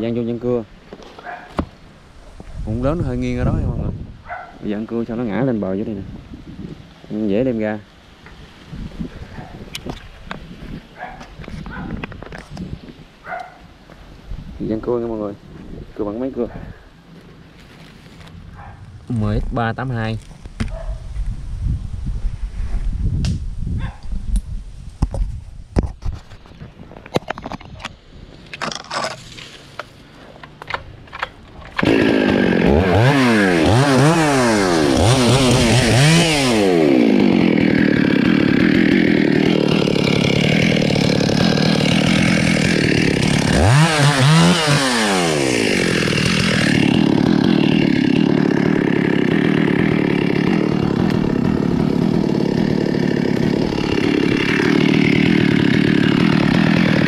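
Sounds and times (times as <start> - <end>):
chainsaw revving and cutting: 31.7 - 57.0.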